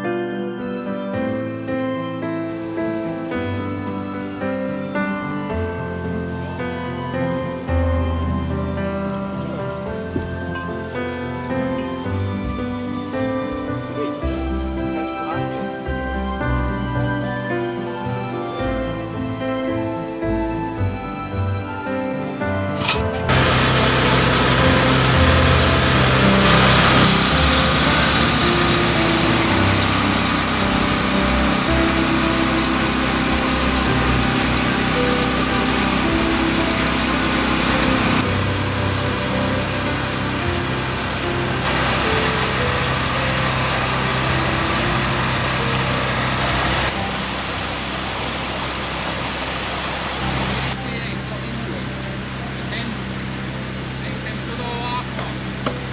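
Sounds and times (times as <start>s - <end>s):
generator engine humming: 1.2s - 55.9s.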